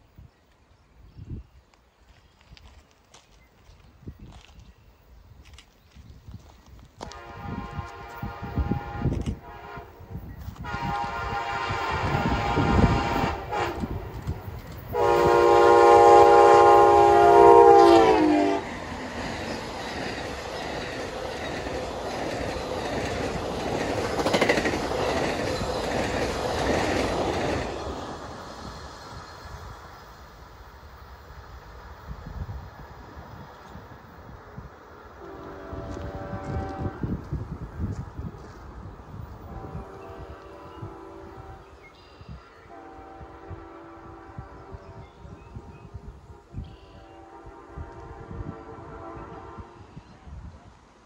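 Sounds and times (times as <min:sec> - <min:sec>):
train wheels rumbling on rails: 0:05.4 - 0:49.8
locomotive horn blasts: 0:07.0 - 0:14.1, 0:14.9 - 0:18.7, 0:35.2 - 0:37.3, 0:39.4 - 0:45.3, 0:46.3 - 0:50.0.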